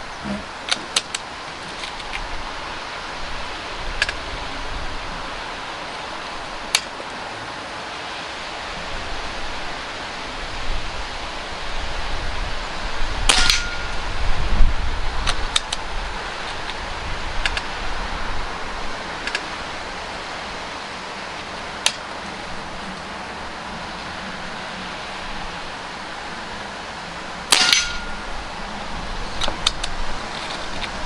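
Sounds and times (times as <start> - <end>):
wind noise on microphone: 0.0 - 7.2, 8.2 - 31.0
double metallic clack: 13.3 - 14.0, 27.5 - 28.2
air rifle shot crack: 27.5 - 28.2.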